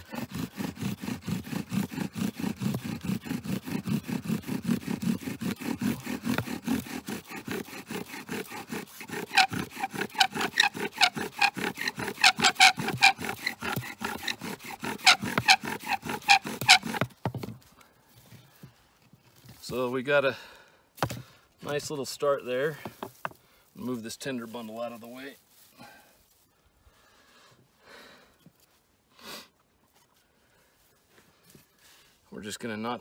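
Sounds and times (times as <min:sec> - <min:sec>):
bow drill spindle grinding: 0:00.0 - 0:17.5
bow drill squeak: 0:09.1 - 0:17.1.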